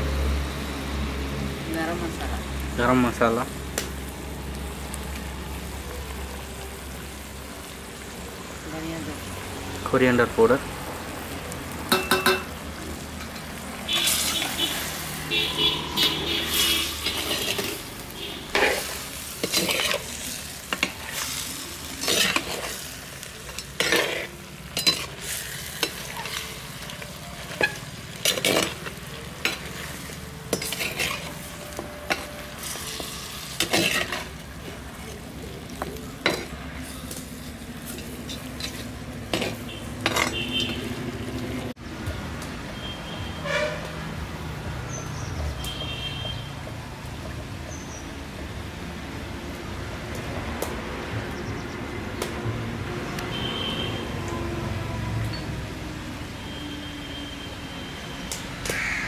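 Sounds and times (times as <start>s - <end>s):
meat sizzling: 0.0s - 41.8s.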